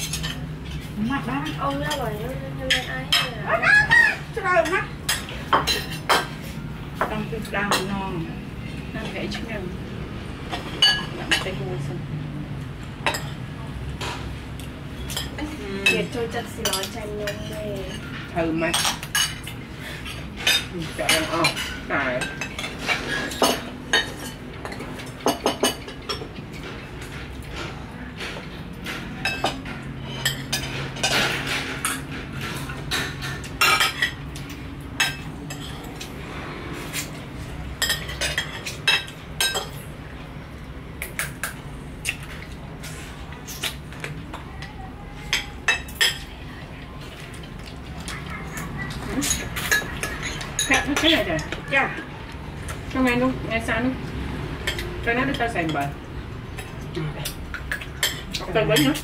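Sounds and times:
cutlery clinking on ceramic dishes: 15.0 - 36.1, 37.8 - 39.8, 47.4 - 51.6.

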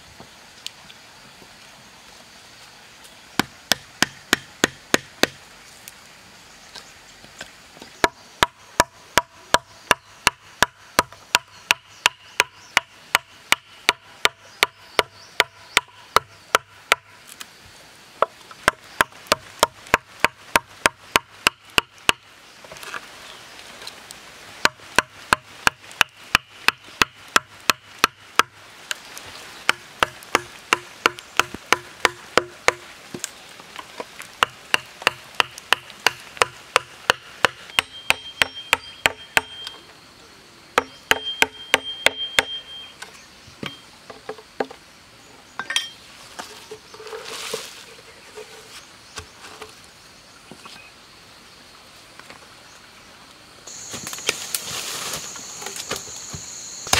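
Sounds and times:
wooden club striking a chisel: 3.4 - 5.4, 29.7 - 32.8, 34.4 - 39.7, 40.8 - 42.6.

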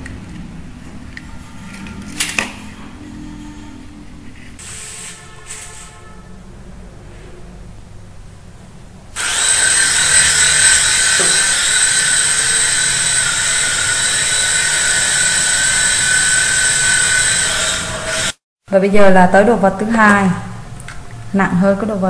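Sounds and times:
toy helicopter rotor whine: 9.2 - 18.4.

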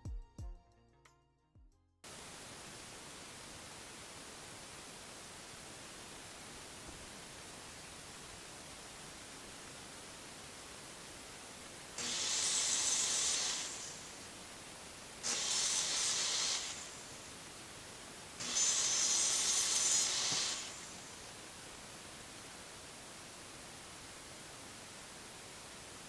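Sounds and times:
hissing bursts: 11.9 - 21.7.

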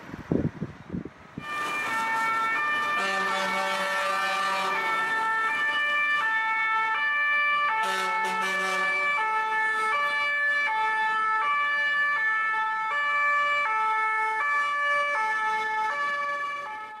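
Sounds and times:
two-tone siren: 1.4 - 17.0.

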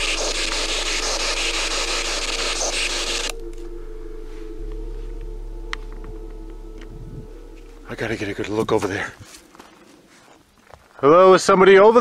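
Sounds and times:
radio static sweeping: 0.0 - 5.3
faint hum: 0.0 - 10.6.

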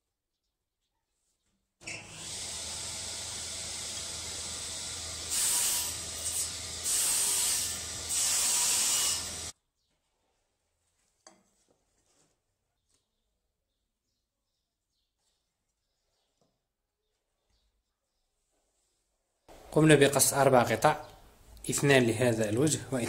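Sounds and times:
saw cutting wooden strips: 1.8 - 9.5.

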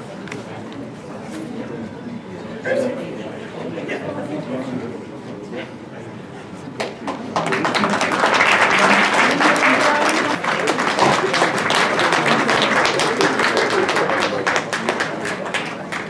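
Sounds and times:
audience applause: 6.8 - 16.0
voices: 7.4 - 16.0.

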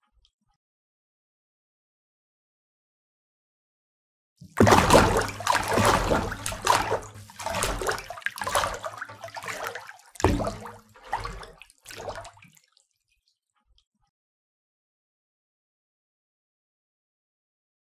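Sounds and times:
water splashing and pouring: 4.4 - 13.0.

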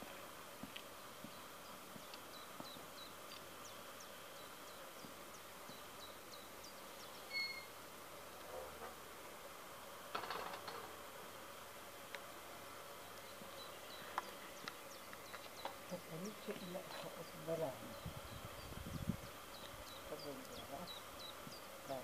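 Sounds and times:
small birds chirping: 0.0 - 7.8, 12.1 - 22.0
whistled bird note: 7.3 - 7.7.

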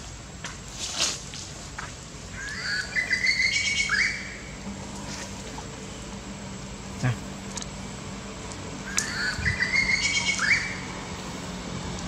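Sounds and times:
high chirping calls: 2.3 - 4.6, 8.8 - 11.0.

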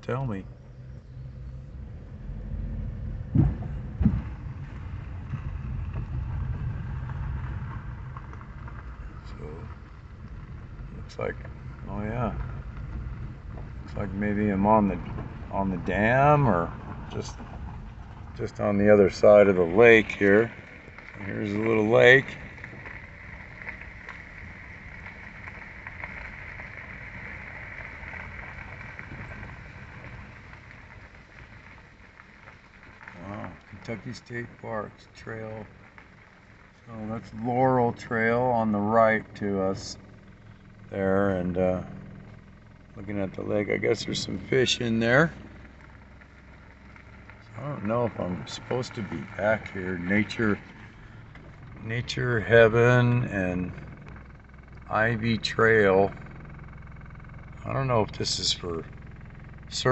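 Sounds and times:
engine and tyres rumbling: 0.0 - 59.9
car thumping over bumps: 1.0 - 33.2.

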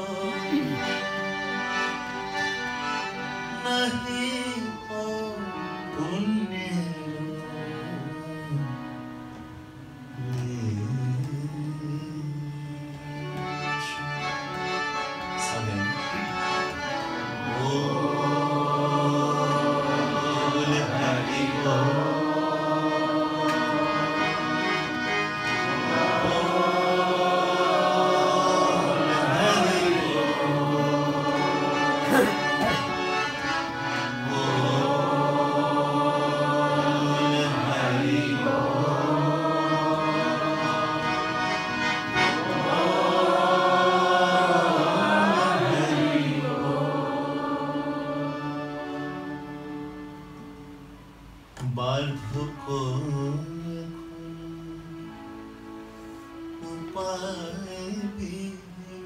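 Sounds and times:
man singing: 0.0 - 1.0, 3.5 - 8.8, 10.2 - 13.0, 28.3 - 32.9, 51.6 - 55.1, 56.6 - 59.0
harmonium chords: 0.0 - 59.0.

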